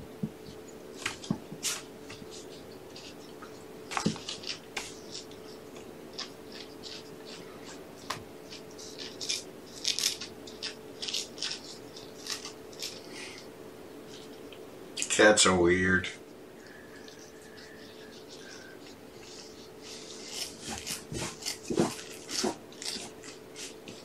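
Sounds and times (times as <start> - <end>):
steady low hum: 0.0 - 24.0
kittens scratching and rustling: 0.1 - 15.3, 16.2 - 24.0.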